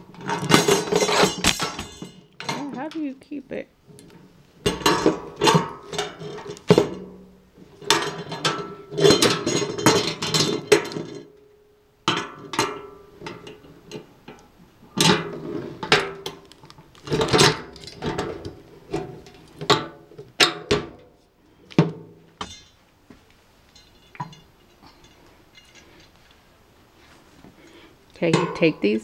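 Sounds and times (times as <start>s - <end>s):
metal cart parts clanking: 0.0s - 3.0s, 3.9s - 11.4s, 12.1s - 21.1s, 22.4s - 22.8s, 23.7s - 26.2s.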